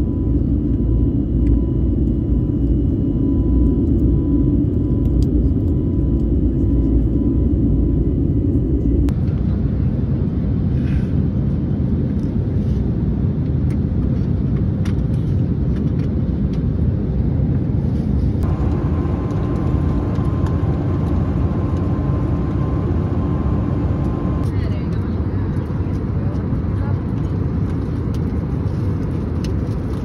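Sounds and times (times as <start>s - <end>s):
faint steady hum: 0.0s - 10.1s, 18.0s - 28.9s
airliner cabin engine rumble: 0.0s - 30.0s.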